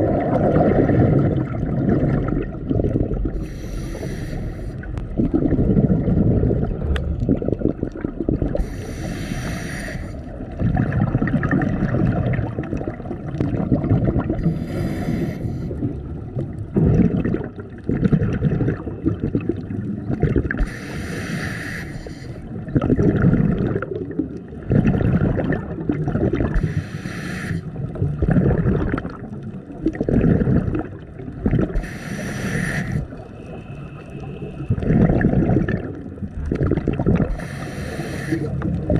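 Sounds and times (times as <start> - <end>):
gurgle of exhaled bubbles: 0.0 - 4.2, 4.8 - 21.2, 22.4 - 26.9, 27.7 - 38.9
regulator inhale hiss: 3.4 - 4.9, 8.6 - 10.3, 14.4 - 15.8, 20.6 - 22.5, 26.6 - 27.8, 31.7 - 34.8, 37.3 - 38.8.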